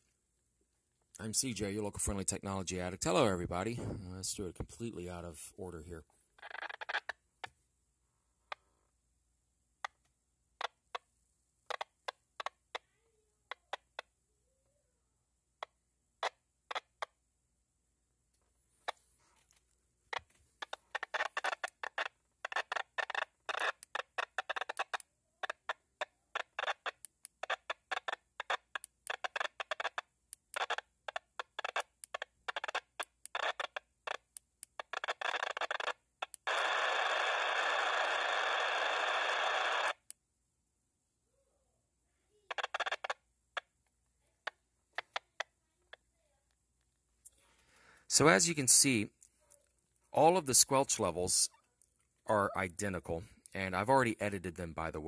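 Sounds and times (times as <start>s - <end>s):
radio static bursts: 35.0s - 40.1s.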